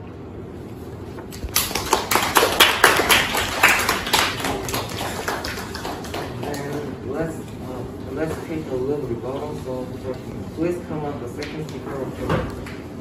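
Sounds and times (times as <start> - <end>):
people clapping: 1.3 - 7.0.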